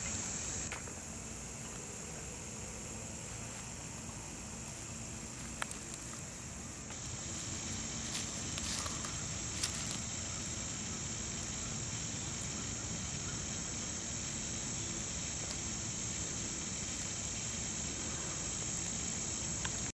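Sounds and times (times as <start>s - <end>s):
insects chirping in grass: 0.0s - 19.9s.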